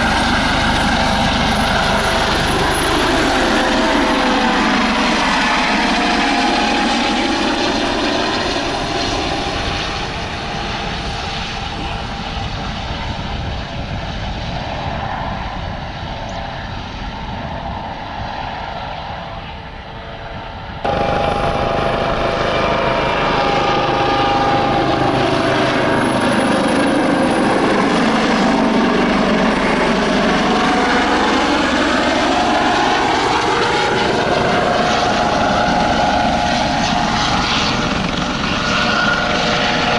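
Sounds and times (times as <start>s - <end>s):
helicopter turbine and rotor noise: 0.0s - 39.9s
tail rotor whine: 0.0s - 39.9s.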